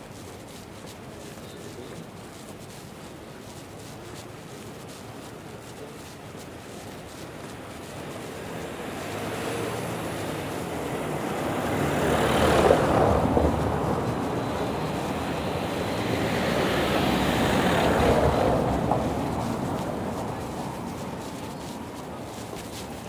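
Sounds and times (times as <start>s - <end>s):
car driving over cobblestones: 8.4s - 22.8s.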